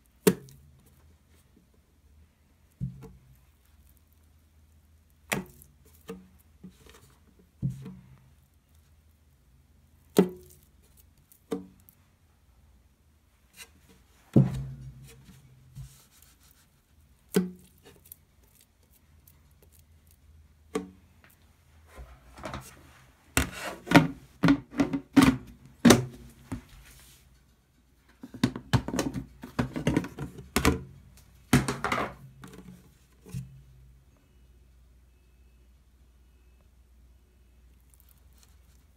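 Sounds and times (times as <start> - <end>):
dough slapping in a plastic tub: 28.1 - 32.8.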